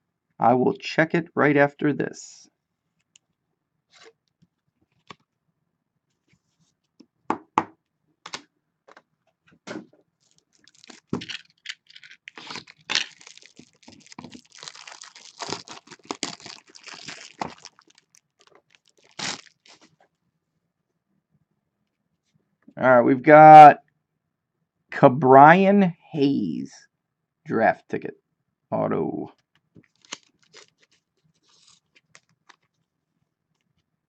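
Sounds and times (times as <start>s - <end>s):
packaging crinkling and rustling: 10.2s - 20.0s, 29.8s - 32.9s.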